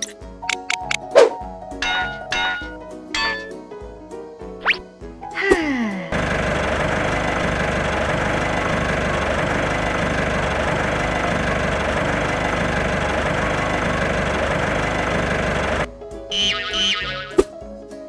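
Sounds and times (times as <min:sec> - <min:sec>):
engine-like mechanical running: 0:06.1 - 0:15.9.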